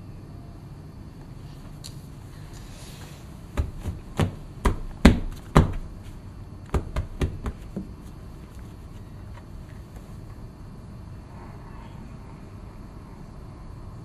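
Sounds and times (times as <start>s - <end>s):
sharp knocks on hard object: 6.7s - 7.9s.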